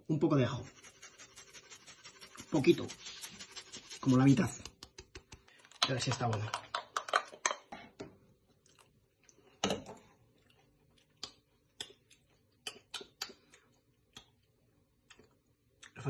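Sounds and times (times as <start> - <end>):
mouth clicks and lip smacks: 4.5 - 5.8, 10.9 - 16.0.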